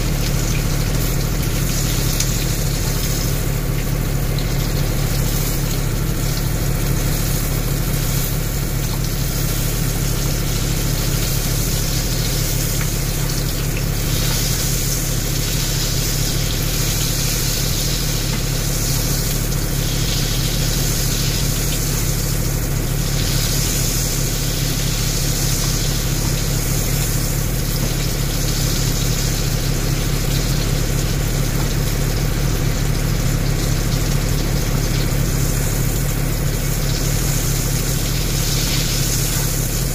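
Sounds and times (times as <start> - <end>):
low mechanical hum: 0.0 - 39.9
steak sizzling in a pan: 0.3 - 31.0.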